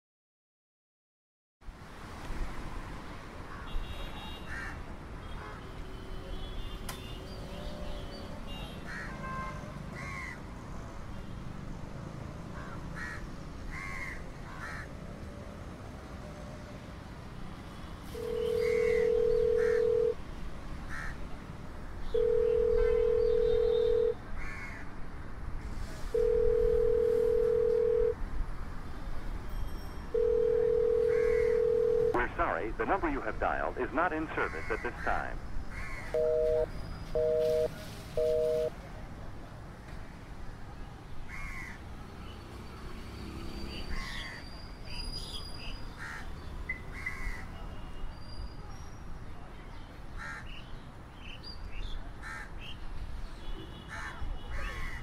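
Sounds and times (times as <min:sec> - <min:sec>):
phone ringing tone: 0:18.1 - 0:20.2, 0:22.2 - 0:24.2, 0:26.2 - 0:28.2, 0:30.1 - 0:32.4, 0:36.2 - 0:38.7.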